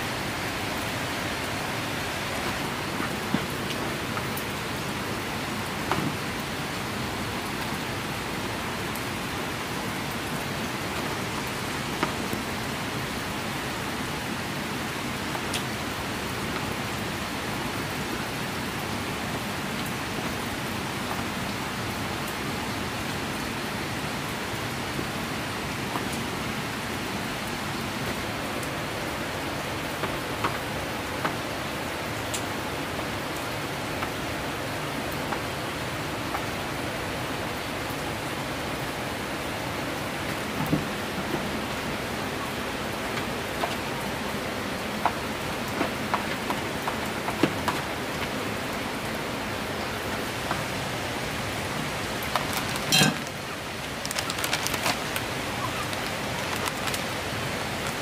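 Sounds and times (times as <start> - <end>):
rain falling steadily: 0.0 - 58.0
ticks of single raindrops: 0.1 - 23.5, 24.2 - 36.9, 38.8 - 58.0.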